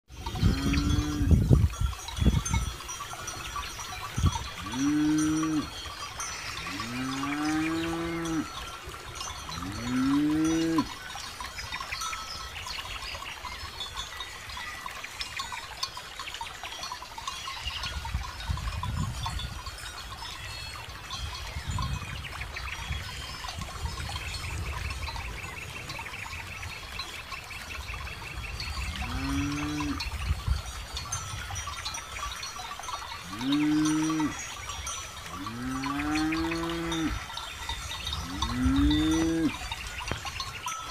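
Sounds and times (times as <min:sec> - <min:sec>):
cow bells clinking: 0:00.1 - 0:40.9
cows mooing: 0:00.2 - 0:01.4, 0:04.5 - 0:08.7, 0:09.4 - 0:11.0, 0:28.9 - 0:30.1, 0:33.2 - 0:34.5, 0:35.3 - 0:37.3, 0:38.1 - 0:39.7.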